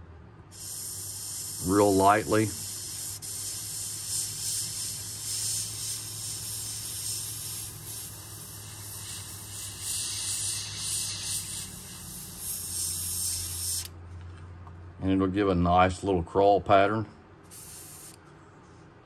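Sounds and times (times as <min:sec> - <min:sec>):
airbrush spraying hiss: 0:00.5 - 0:13.9, 0:17.5 - 0:18.2.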